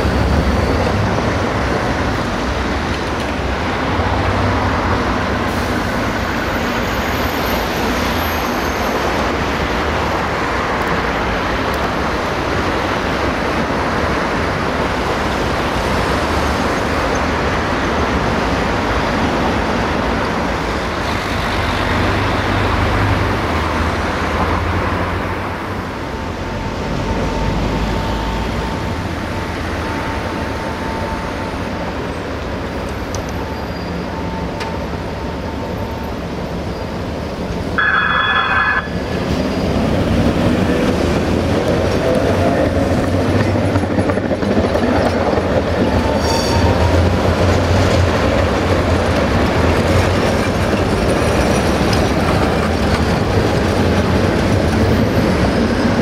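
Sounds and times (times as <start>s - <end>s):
tram running on track: 0.0s - 56.0s
tram warning bell ringing: 24.6s - 56.0s
traction motors whining: 32.7s - 40.7s.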